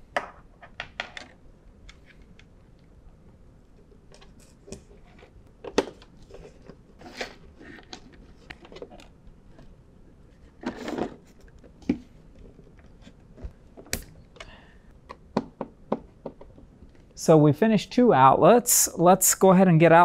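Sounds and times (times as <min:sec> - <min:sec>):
cable and plastic handling: 0:03.7 - 0:17.1.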